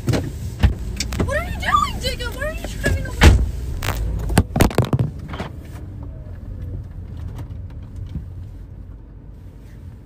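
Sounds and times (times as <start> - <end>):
car door slamming: 2.8 - 5.6
knocks and clatters: 2.8 - 8.4.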